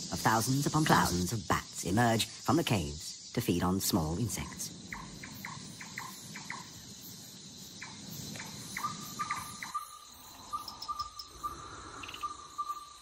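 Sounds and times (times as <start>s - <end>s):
insects: 0.0s - 13.0s
fast pulsed calls: 7.7s - 13.0s
short chirping calls: 7.8s - 13.0s.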